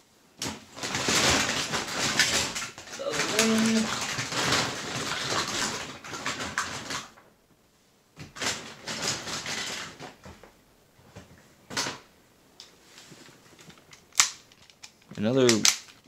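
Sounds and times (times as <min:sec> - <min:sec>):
plastic toys clattering: 0:00.4 - 0:07.3, 0:08.2 - 0:10.5, 0:13.5 - 0:16.0
plastic bag rustling: 0:00.5 - 0:07.3, 0:08.2 - 0:12.0
sharp plastic clacks: 0:13.6 - 0:16.0.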